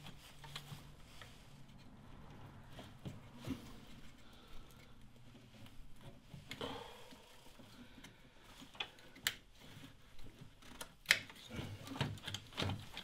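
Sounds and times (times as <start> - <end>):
wiring rustling: 0.0 - 13.0
plastic clips clicking: 10.6 - 11.4.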